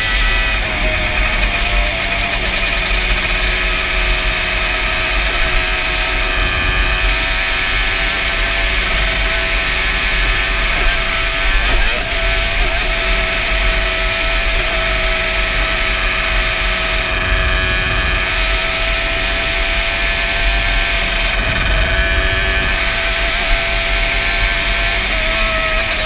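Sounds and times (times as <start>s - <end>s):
two-stroke engine running hard: 0.0s - 26.0s
wind buffeting microphone: 16.1s - 25.2s.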